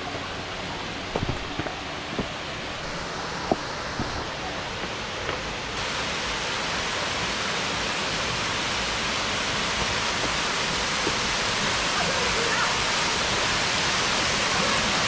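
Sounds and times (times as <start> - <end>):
waterfall rushing: 0.0 - 15.0
footsteps on loose stones: 1.0 - 5.6.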